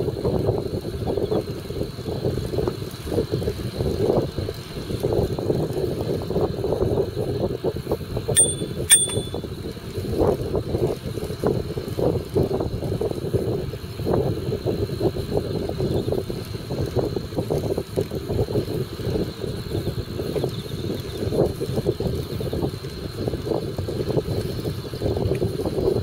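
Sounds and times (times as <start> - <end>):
wind and road noise: 0.0 - 26.0
bicycle bell dings: 8.4 - 9.5.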